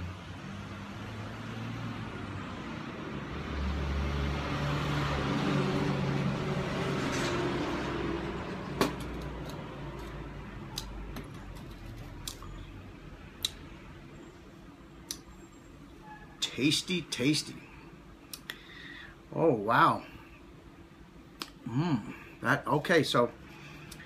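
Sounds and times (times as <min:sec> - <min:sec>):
vehicle passing by: 0:00.0 - 0:10.6.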